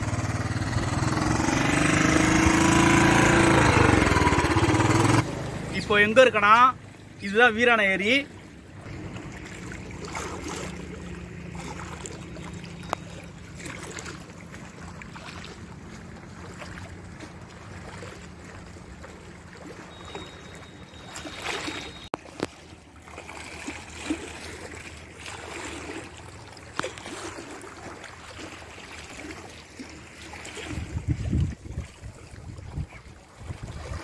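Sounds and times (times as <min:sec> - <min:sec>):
waves lapping against stone: 0:08.0 - 0:34.0
wind buffeting microphone: 0:30.7 - 0:34.0.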